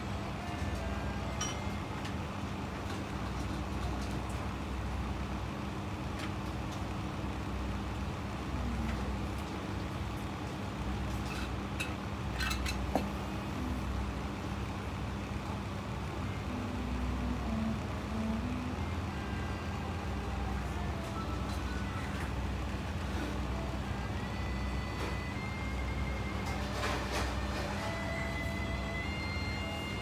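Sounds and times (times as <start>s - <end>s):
low hum and rumble: 0.0s - 30.0s.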